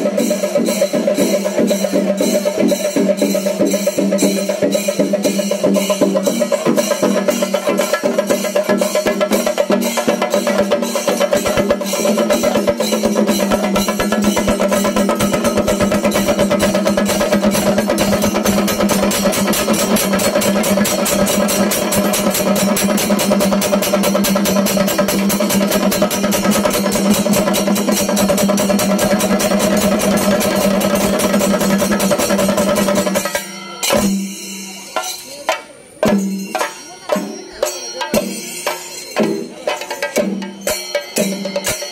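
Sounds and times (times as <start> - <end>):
drums beaten with sticks: 0.0 - 41.9
hand cymbals clashing: 0.0 - 41.9.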